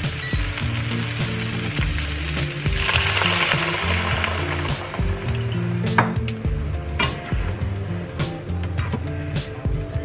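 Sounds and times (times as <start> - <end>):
vegetables sizzling in a frying pan: 0.0 - 5.7
background music with bass line: 0.0 - 10.0.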